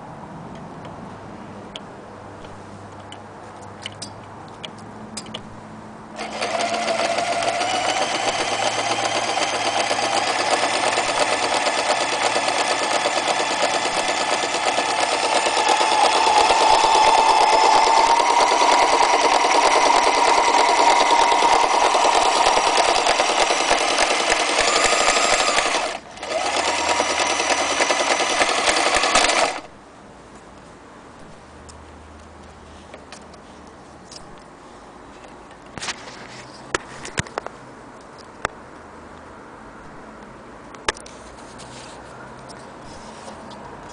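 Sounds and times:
sewing machine stitching: 0:06.2 - 0:29.7.

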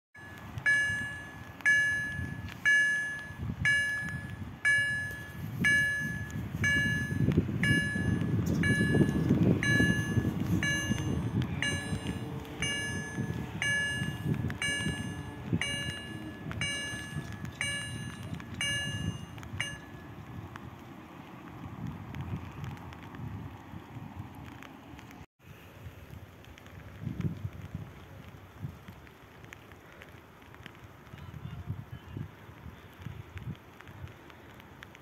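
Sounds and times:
level crossing bell clanging: 0:00.2 - 0:20.0
low rumbling noise: 0:00.2 - 0:24.9.

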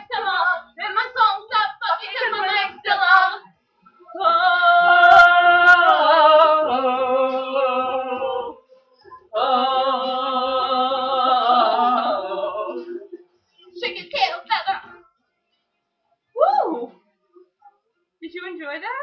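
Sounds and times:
women singing a cappella: 0:00.0 - 0:08.7, 0:09.3 - 0:13.2.

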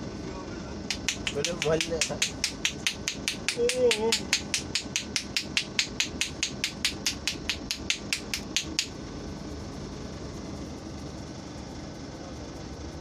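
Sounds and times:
hands tapping on head: 0:00.9 - 0:08.9.

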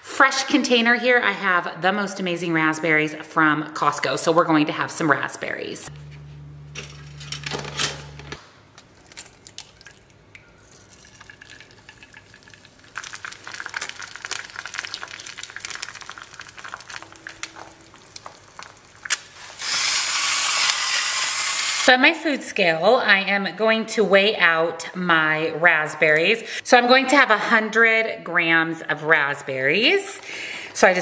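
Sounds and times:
toaster low hum: 0:05.9 - 0:08.4
egg whites sizzling in skillet: 0:09.4 - 0:21.9.

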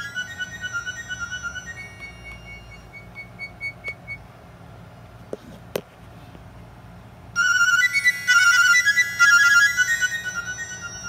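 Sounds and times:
high beeping ringtone: 0:00.0 - 0:04.2, 0:07.4 - 0:11.0
ringtone melody: 0:00.0 - 0:04.3, 0:07.4 - 0:11.0.

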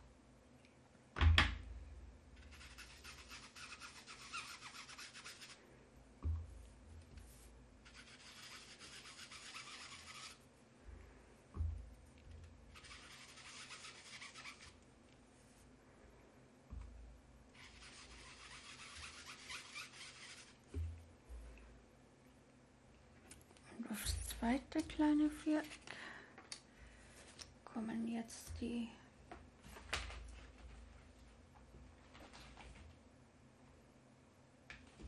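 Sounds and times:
sponge dauber rubbing on card: 0:02.5 - 0:05.6, 0:07.3 - 0:10.4, 0:12.7 - 0:14.8, 0:17.6 - 0:20.6.

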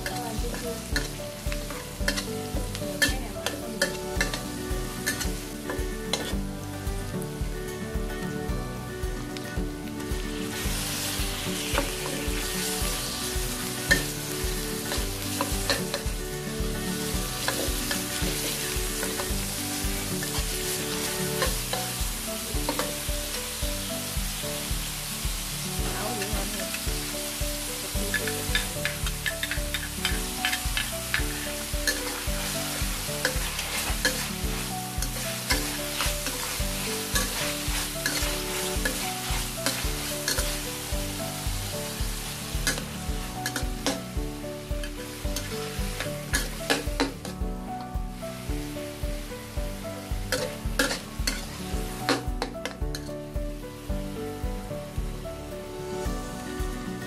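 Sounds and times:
metal spatula scraping wok: 0:00.0 - 0:06.4, 0:16.8 - 0:23.0, 0:28.0 - 0:40.9, 0:41.8 - 0:44.0
food sizzling in hot oil: 0:00.0 - 0:57.0.

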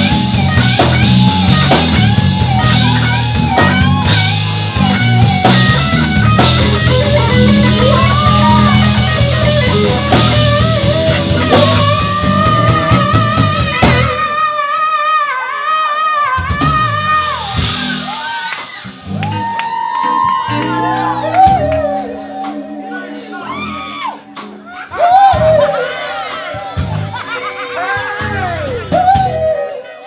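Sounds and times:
heavy low end: 0:00.0 - 0:14.2, 0:20.6 - 0:25.8
drum kit: 0:00.0 - 0:29.9
electric guitar: 0:00.0 - 0:30.0
keyboard: 0:16.4 - 0:30.0.

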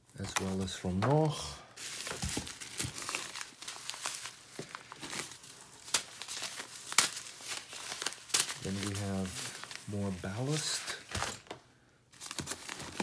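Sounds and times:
plastic and bubble wrap crinkling: 0:00.0 - 0:13.0.

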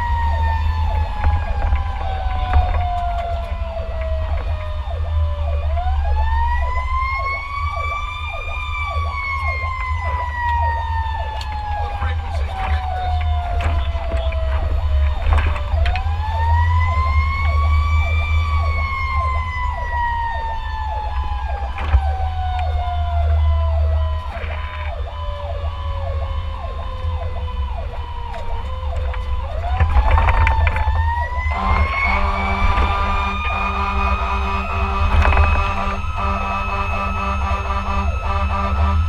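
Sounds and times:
diesel engine rumble: 0:00.0 - 0:39.0
fire truck siren wailing: 0:00.0 - 0:39.0
low horn blast: 0:31.4 - 0:39.0.

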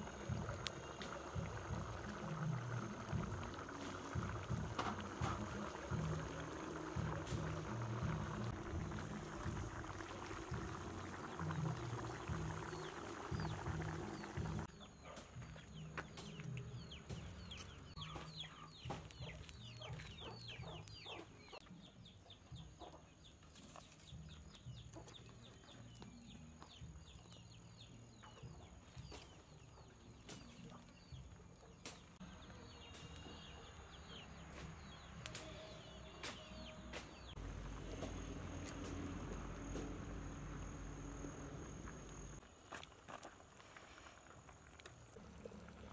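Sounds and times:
wood fire crackling: 0:00.0 - 0:14.7, 0:15.7 - 0:21.6, 0:37.2 - 0:45.9
chicks peeping: 0:16.8 - 0:26.0.

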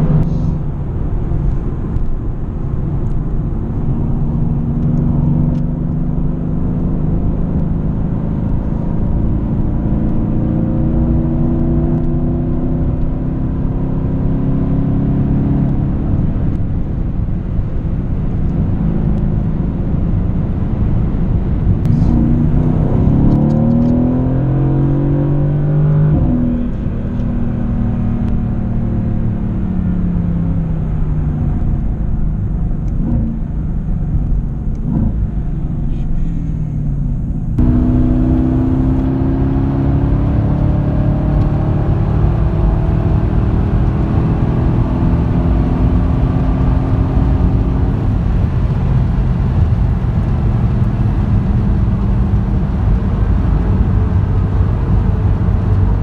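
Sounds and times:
car engine revving: 0:00.0 - 0:16.2, 0:20.0 - 0:56.0.

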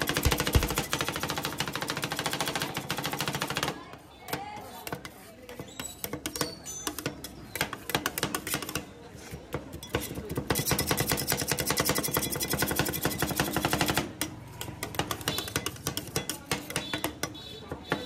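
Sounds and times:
metal spatulas chopping on steel: 0:09.4 - 0:18.0.

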